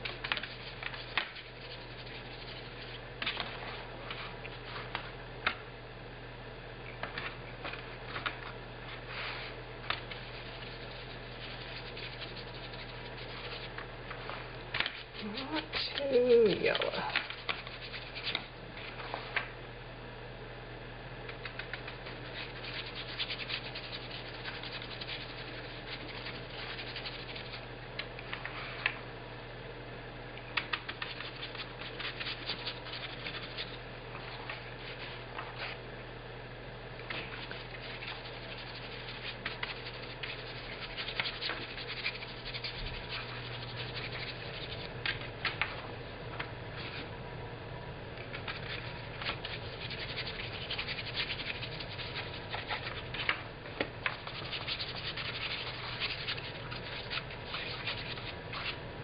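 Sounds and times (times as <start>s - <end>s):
paintbrush scrubbing wet fabric: 0.0s - 4.9s, 9.1s - 18.4s, 21.7s - 27.7s, 30.9s - 35.8s, 37.1s - 44.9s, 48.4s - 53.3s, 54.1s - 58.8s
steady low hum: 0.0s - 59.0s.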